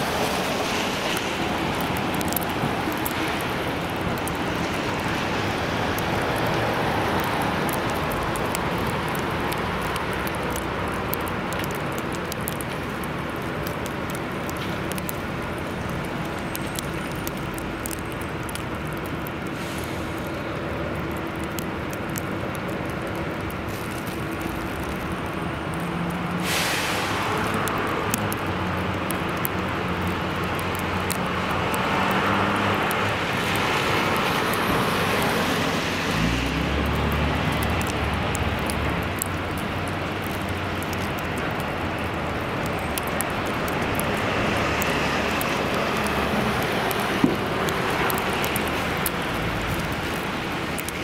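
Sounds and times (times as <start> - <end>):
vehicles passing on wet road: 0.0 - 51.0
short hiss: 26.4 - 27.3.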